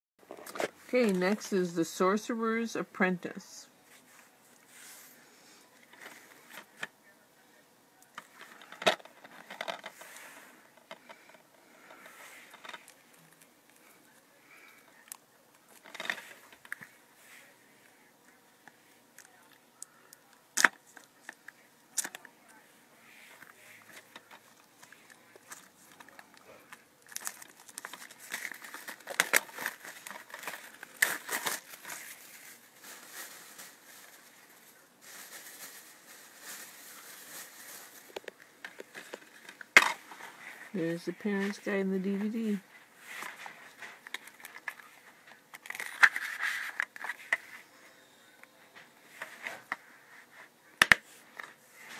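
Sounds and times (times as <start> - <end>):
plastic wrap crinkling: 23.4 - 47.6
plastic wrap snapping: 27.0 - 34.2.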